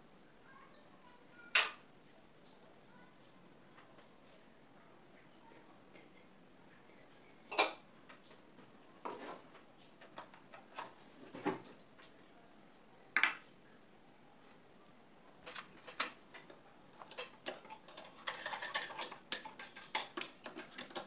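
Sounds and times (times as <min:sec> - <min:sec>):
small metal parts clinking: 0:17.0 - 0:21.0.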